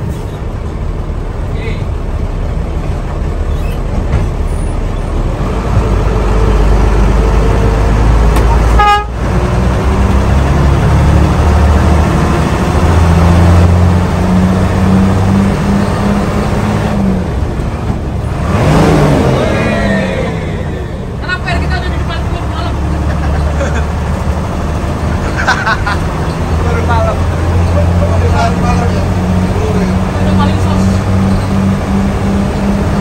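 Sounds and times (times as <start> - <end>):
bus engine accelerating: 0.0 - 33.0
short horn toot: 8.7 - 9.2.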